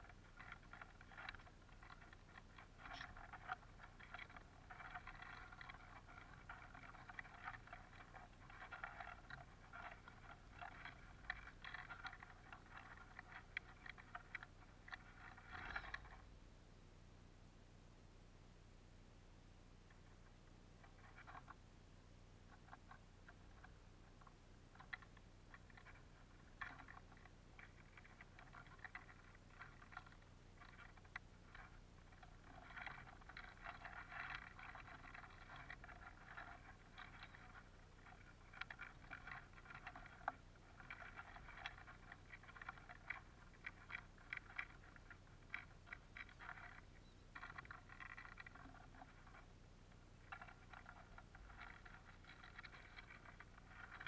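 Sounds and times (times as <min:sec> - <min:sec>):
birds pecking seeds clicking: 0:00.0 - 0:16.2.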